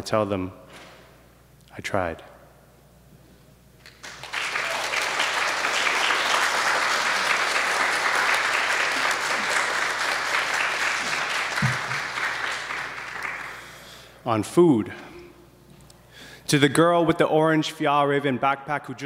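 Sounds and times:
audience applauding: 3.8 - 13.9.

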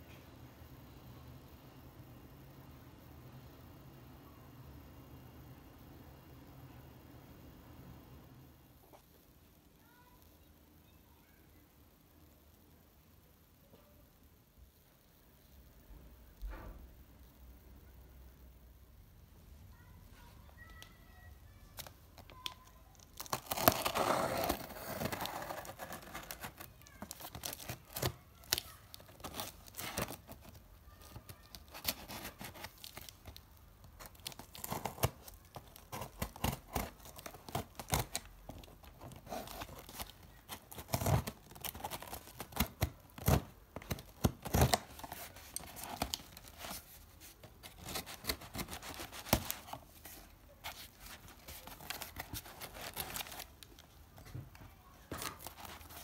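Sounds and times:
packaging tearing and crinkling: 21.8 - 54.0, 55.1 - 56.0.

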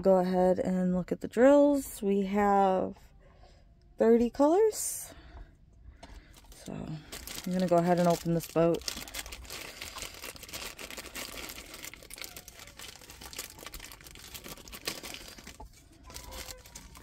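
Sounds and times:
plastic bag crinkling: 6.3 - 17.0.

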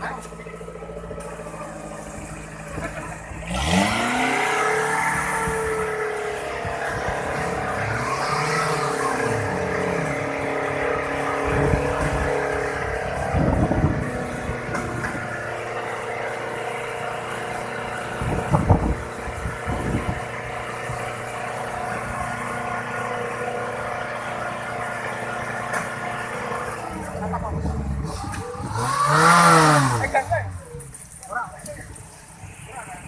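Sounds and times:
engine bursts: 0.0 - 33.0.

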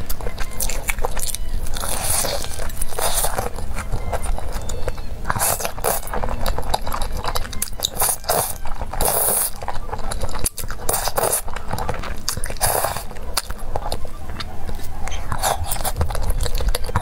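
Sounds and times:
chewing: 0.0 - 17.0
slurping noodles: 5.3 - 14.1.

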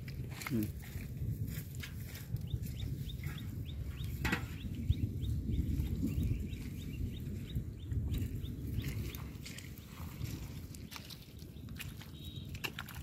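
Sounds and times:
small bird chirping: 2.4 - 9.2, 10.8 - 12.6.

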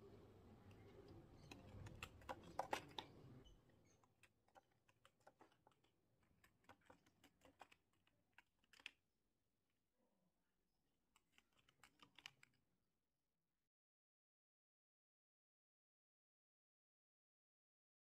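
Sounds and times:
paper toy clicking and tapping: 1.4 - 3.2, 3.9 - 9.0, 11.2 - 12.6.

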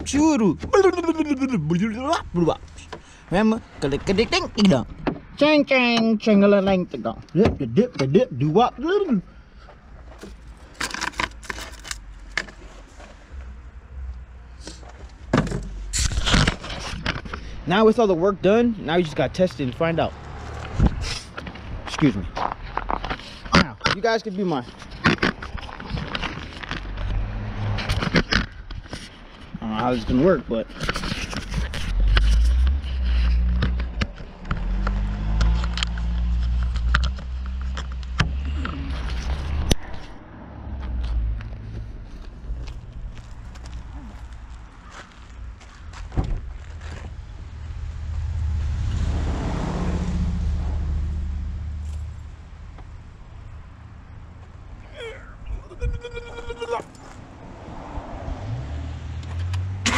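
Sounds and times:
handling clicks and scrapes: 9.6 - 13.6, 14.5 - 17.6, 20.2 - 44.6.

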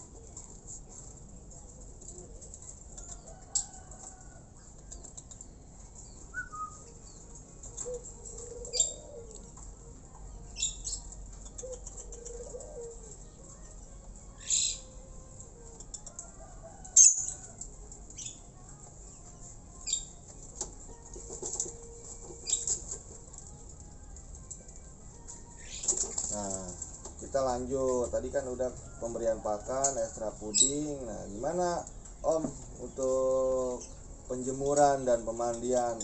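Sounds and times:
bird wings fluttering against cage: 25.6 - 27.3.

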